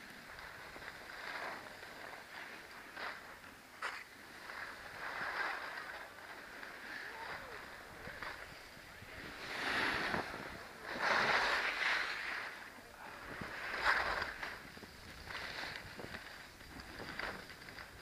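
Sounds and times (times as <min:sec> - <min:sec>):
skis scraping over snow: 0:00.0 - 0:18.0
wind on microphone: 0:07.1 - 0:18.0.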